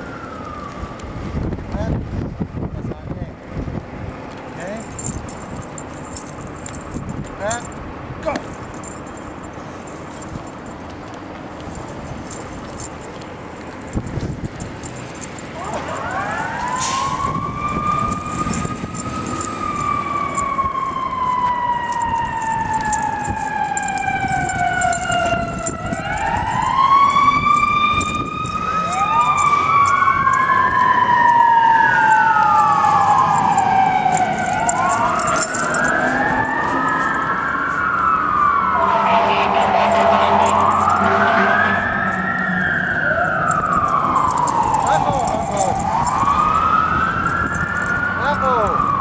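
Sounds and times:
sirens wailing: 0:00.0 - 0:01.4, 0:12.2 - 0:49.0.

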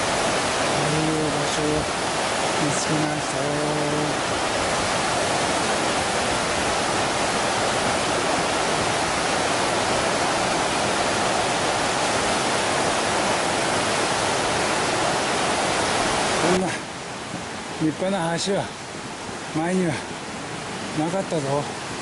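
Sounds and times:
stream rushing over boulders: 0:00.0 - 0:22.0.

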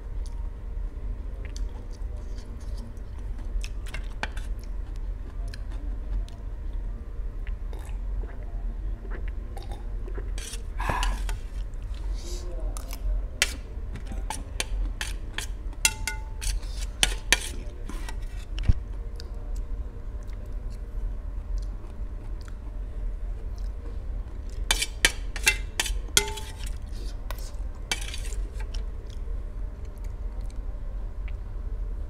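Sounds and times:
chewing: 0:01.4 - 0:06.8, 0:07.4 - 0:11.8, 0:21.5 - 0:22.8, 0:23.4 - 0:25.1
metal spoon scraping a plate: 0:10.4 - 0:11.4, 0:13.4 - 0:18.5, 0:24.7 - 0:28.8.

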